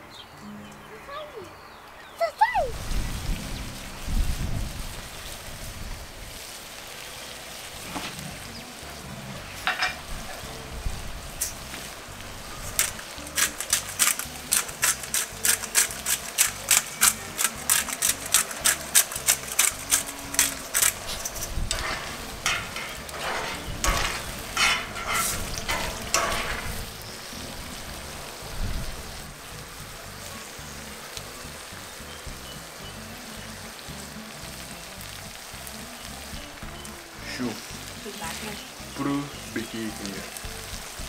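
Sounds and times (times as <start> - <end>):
sauce bubbling and popping: 9.4 - 41.0
metal spoon scraping a pan: 9.5 - 10.5, 12.6 - 27.2.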